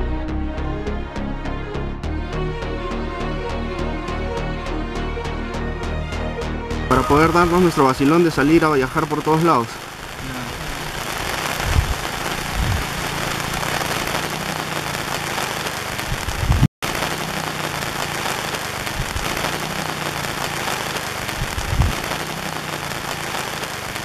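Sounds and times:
heavy rain hissing: 6.9 - 24.0.

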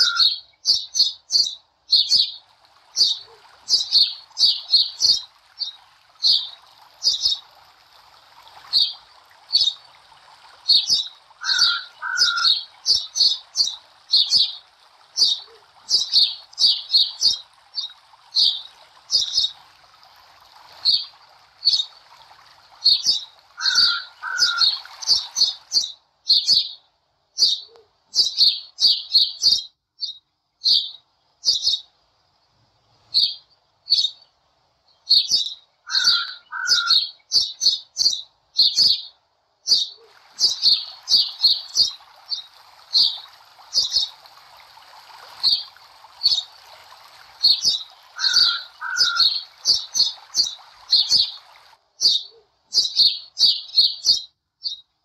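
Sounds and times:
small bird chirping: 0.0 - 2.4, 3.0 - 7.4, 8.7 - 9.8, 10.6 - 14.6, 15.2 - 19.5, 20.8 - 22.0, 22.8 - 26.8, 27.4 - 31.9, 33.1 - 34.3, 34.9 - 43.2, 43.8 - 44.2, 45.4 - 46.5, 52.0 - 54.9
faint steady hiss: 0.0 - 11.4, 24.6 - 35.9, 37.0 - 48.2.

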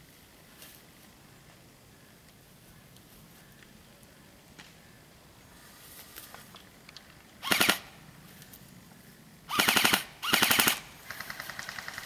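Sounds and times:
airsoft rifle bursts: 7.4 - 8.0, 9.5 - 12.0
distant rapid gunfire rattle: 7.4 - 8.0, 9.5 - 12.0.

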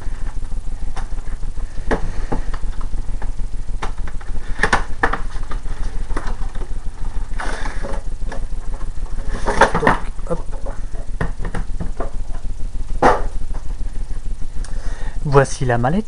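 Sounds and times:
low hum and crackling hiss: 0.0 - 16.0.

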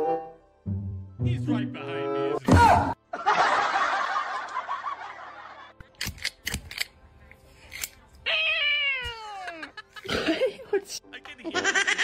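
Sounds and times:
person snickering: 9.5 - 10.8.

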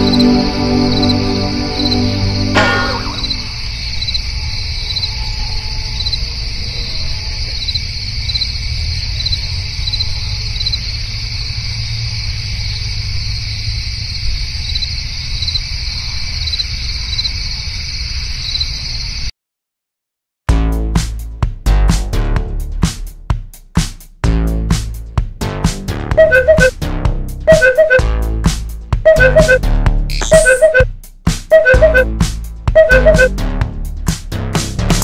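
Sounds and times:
crickets chirping: 0.0 - 19.3.

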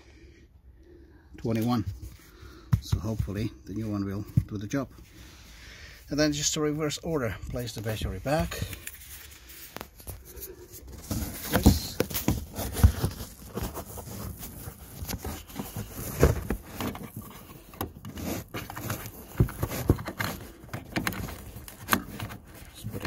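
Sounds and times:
rustling: 7.6 - 23.0.

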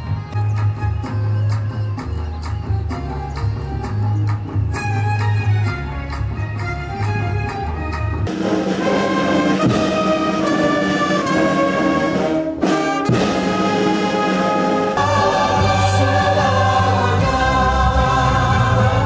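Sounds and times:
brass band playing held chords: 8.2 - 19.0.

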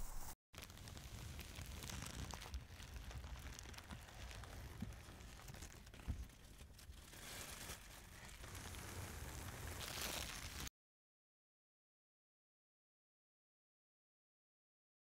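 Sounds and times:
plastic bag crinkling: 0.6 - 10.7.

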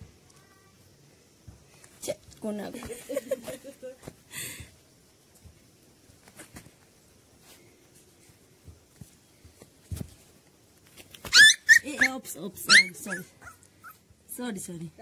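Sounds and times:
puppy yelping: 11.2 - 14.0.

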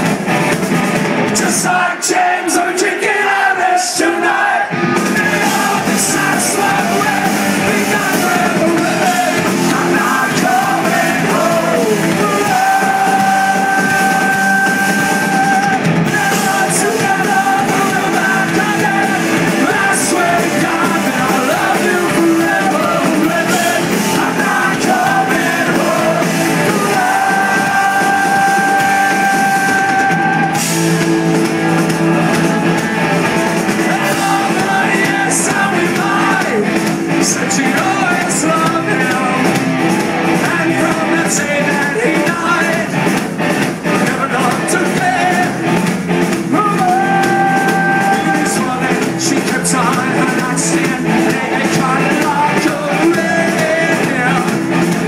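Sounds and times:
punk rock band playing live: 0.0 - 55.0.

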